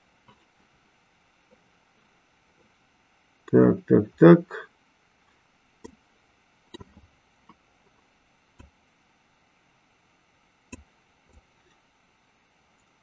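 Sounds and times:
computer mouse clicks: 6.7 - 7.0, 8.6 - 8.8.

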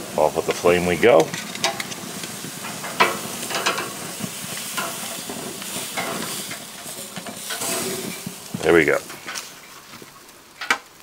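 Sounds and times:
meat sizzling on a grill: 0.0 - 11.0
tongs clinking and scraping grate: 1.2 - 2.0, 2.6 - 9.9.

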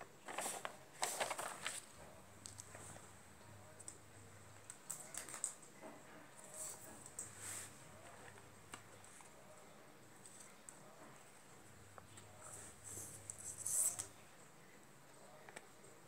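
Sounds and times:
paper rustling: 0.0 - 3.1.

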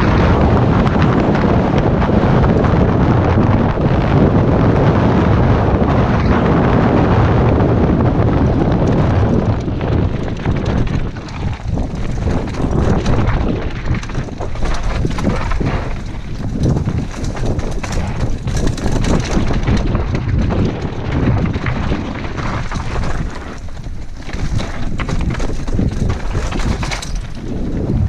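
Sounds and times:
bike rattling over rocky dirt: 0.0 - 28.0
wind buffeting a camera: 0.0 - 28.0.

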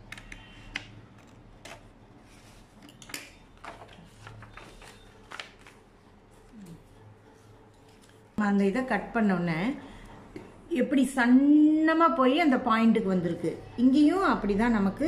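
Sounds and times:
paper rustling: 3.6 - 6.8.

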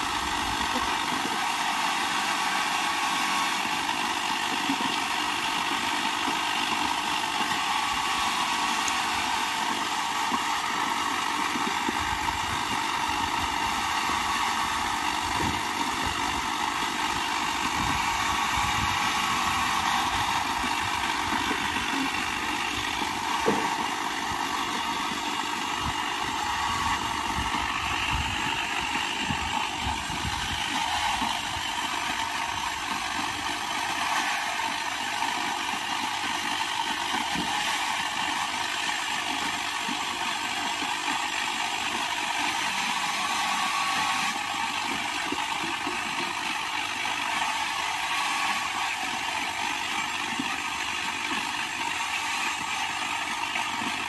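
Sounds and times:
circular saw cutting branches: 0.0 - 54.0
knocks of wood: 22.9 - 23.9.

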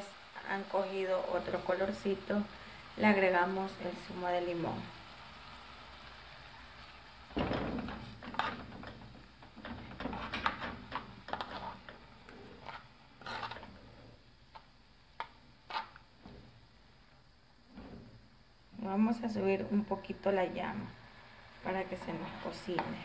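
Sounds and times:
shrimp frying in a pan: 0.0 - 16.8, 19.0 - 23.0
metal spoon scraping pan: 9.6 - 14.1, 15.6 - 16.0.

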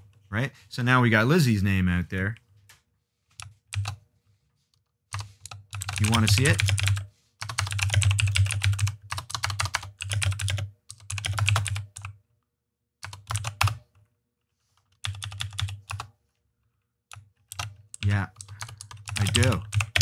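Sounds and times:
computer keyboard typing: 3.4 - 4.0, 5.1 - 12.2, 13.0 - 13.9, 14.8 - 16.1, 17.1 - 20.0.

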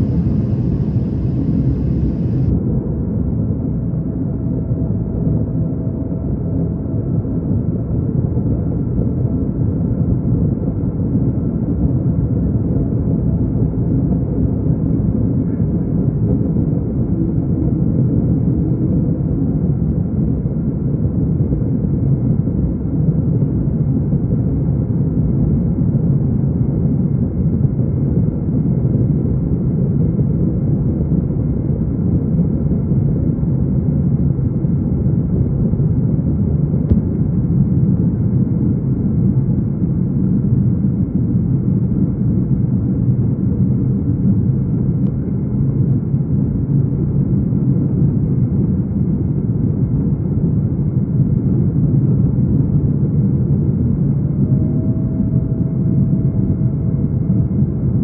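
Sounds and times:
airliner cabin engine rumble: 0.0 - 19.4, 28.6 - 58.0.

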